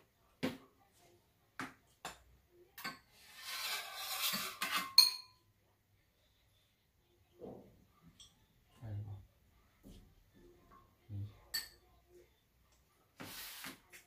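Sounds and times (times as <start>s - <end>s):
ringing metal clink: 4.9s - 5.4s.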